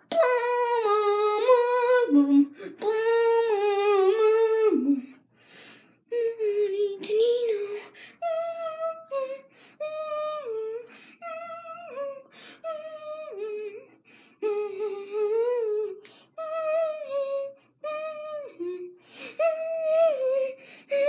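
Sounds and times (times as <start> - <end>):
boy humming: 0.0 - 5.2.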